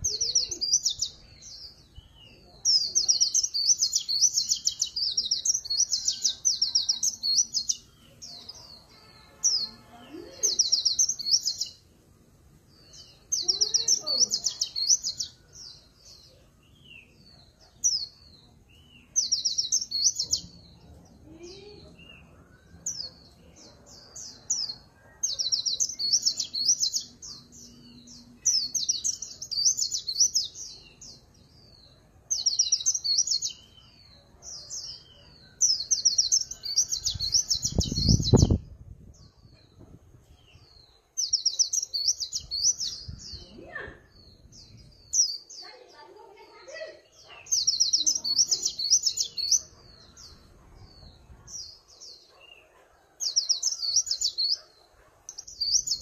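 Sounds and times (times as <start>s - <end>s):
bird twittering warble: 36.5s - 38.7s.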